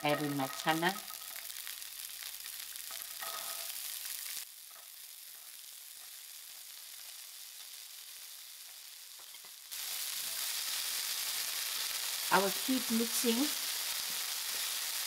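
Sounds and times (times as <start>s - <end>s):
chickpeas sizzling in hot oil: 0.0s - 15.0s.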